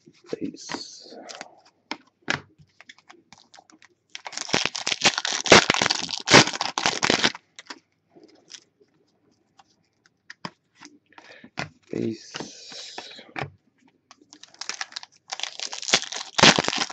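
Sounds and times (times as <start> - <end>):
wrapper being torn and crinkled: 3.4 - 7.8, 14.3 - 16.9.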